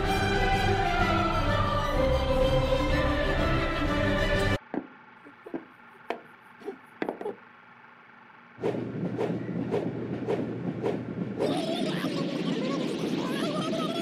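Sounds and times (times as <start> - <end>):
whoosh of spinning arm: 8.6 - 11.4.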